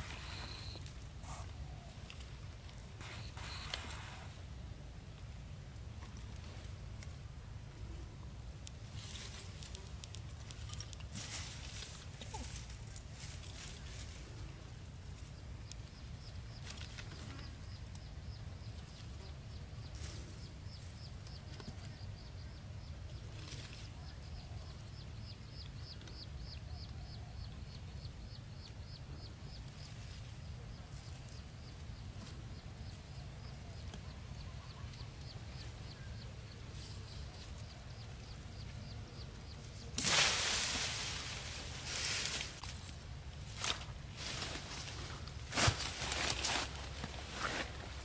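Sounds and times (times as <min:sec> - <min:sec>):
dry sticks and grass rustling: 0:00.0 - 0:04.3, 0:08.5 - 0:19.2, 0:39.7 - 0:48.0.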